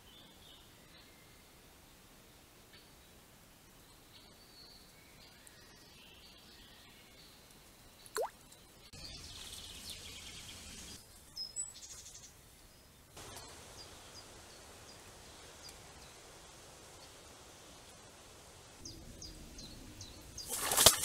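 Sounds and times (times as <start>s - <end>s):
steady hiss: 9.2s - 11.2s, 11.8s - 20.8s.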